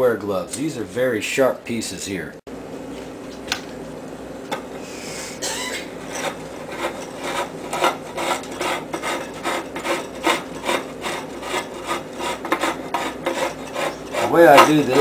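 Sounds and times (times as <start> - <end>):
scratchy rasping strokes: 6.0 - 15.0.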